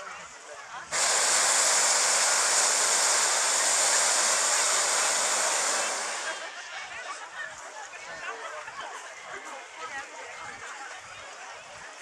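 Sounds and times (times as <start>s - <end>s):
propane burner hissing: 0.9s - 6.6s.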